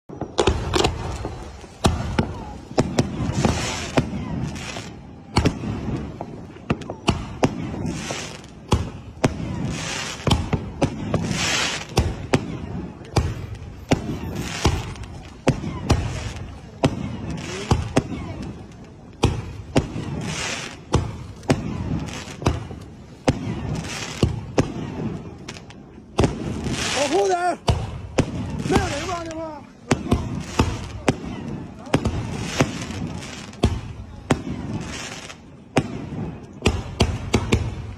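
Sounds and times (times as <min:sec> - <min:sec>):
firework tail hissing: 0:00.4 - 0:05.0, 0:09.5 - 0:12.2.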